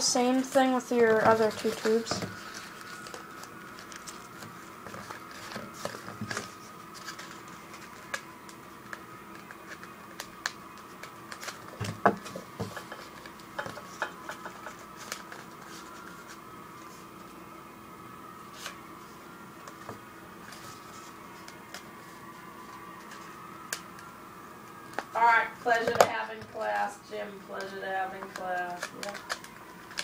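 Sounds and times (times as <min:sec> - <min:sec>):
paper tubes tapping and rustling: 0:00.0 - 0:16.4, 0:27.5 - 0:30.0
faint steady hum: 0:00.0 - 0:30.0.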